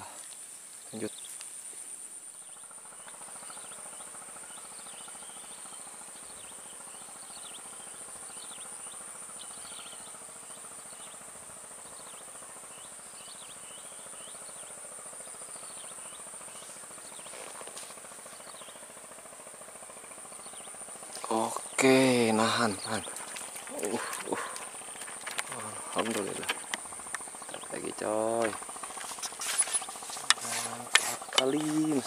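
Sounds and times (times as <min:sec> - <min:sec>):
insects droning high-pitched: 0:00.0 - 0:32.0
short chirping calls: 0:20.3 - 0:32.0.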